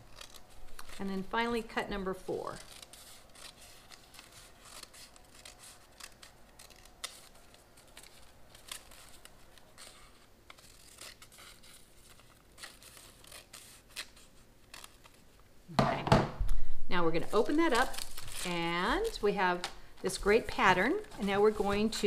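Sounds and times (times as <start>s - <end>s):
scissors snipping paper: 0.0s - 1.2s, 2.3s - 15.2s.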